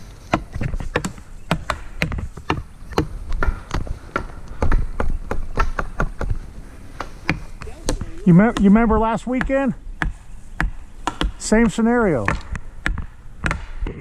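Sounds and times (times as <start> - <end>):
sharp knocks and taps: 8.6 - 13.8.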